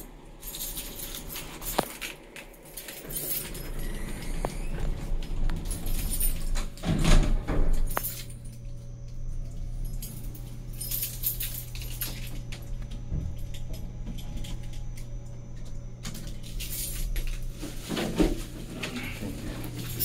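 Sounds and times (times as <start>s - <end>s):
elevator hum: 0.0s - 20.0s
metallic jingling: 0.4s - 4.7s, 9.8s - 12.5s.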